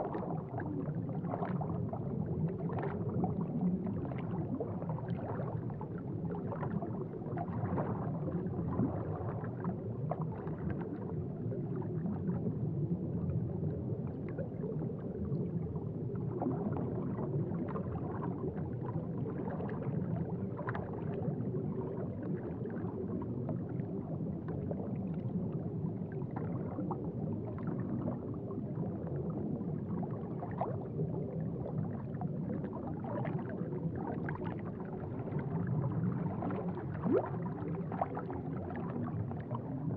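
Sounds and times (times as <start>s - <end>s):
aquarium water bubbling: 0.0s - 39.9s.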